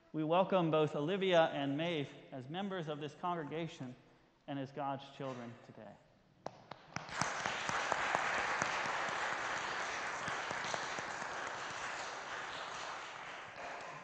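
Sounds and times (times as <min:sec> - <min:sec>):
people applauding: 0:06.9 - 0:14.0.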